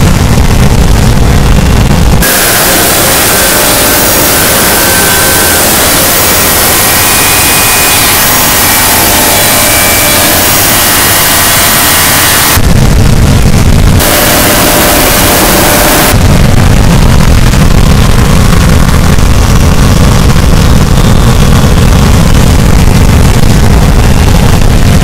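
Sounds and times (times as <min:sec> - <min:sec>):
heavy low rumbling noise: 0:00.0 - 0:25.0
harsh noise wall of hiss: 0:01.8 - 0:17.7.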